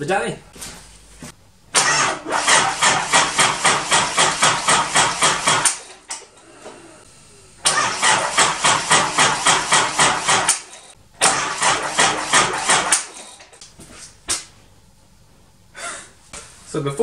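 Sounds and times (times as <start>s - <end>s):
diesel engine cranking by starter: 1.7s - 13.6s.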